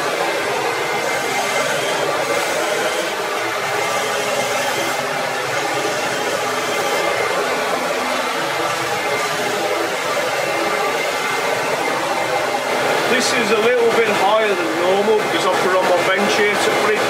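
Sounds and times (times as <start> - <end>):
dust extractor whine: 0.0 - 17.0
hand tool cutting on wood lathe: 1.0 - 7.4.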